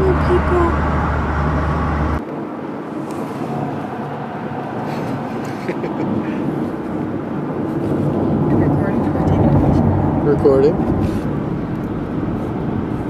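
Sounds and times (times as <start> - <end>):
heavy low rumble: 0.0 - 2.2, 3.1 - 13.0
tyre and engine road noise: 0.0 - 13.0.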